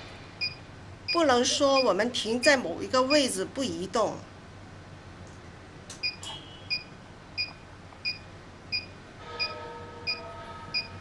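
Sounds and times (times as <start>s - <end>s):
short machine beeps: 6.0s - 7.5s, 8.1s - 11.0s.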